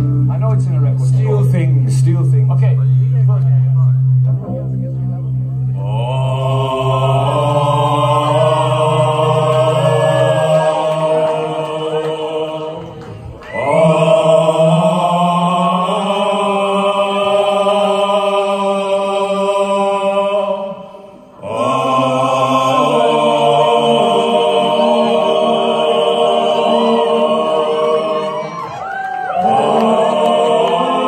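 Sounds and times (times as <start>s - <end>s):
men singing chant-like chord: 5.8s - 28.7s, 29.4s - 31.0s.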